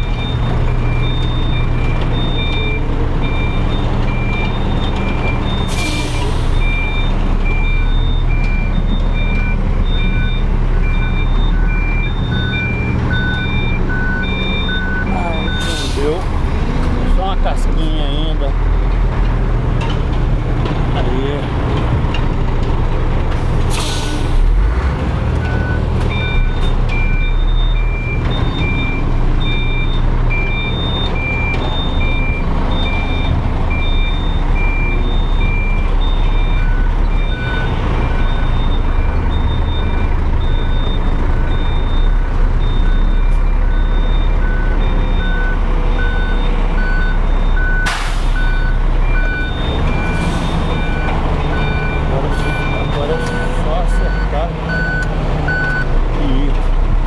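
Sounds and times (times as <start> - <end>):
reverse alarm beeping: 0.0 - 16.3, 25.4 - 55.9
truck diesel engine running: 0.0 - 57.0
air brake hiss: 23.7 - 24.3, 47.9 - 48.5.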